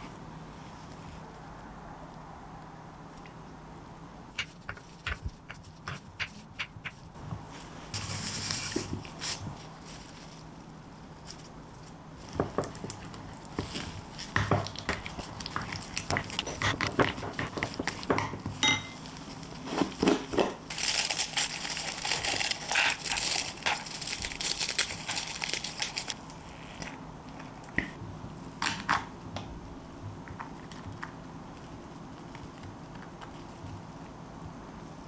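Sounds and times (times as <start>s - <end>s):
crackling of crumbling pieces: 20.7s - 27.8s.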